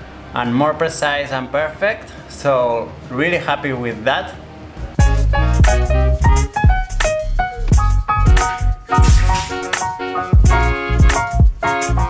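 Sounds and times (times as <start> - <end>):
sustained chords: 4.5 - 12.0
low drum hits: 7.7 - 9.8.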